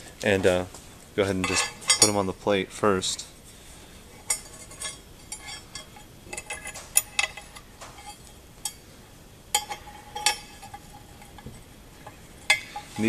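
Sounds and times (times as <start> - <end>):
metal hooks clinking on steel plate: 1.4 - 2.2, 4.2 - 8.8, 9.5 - 13.0.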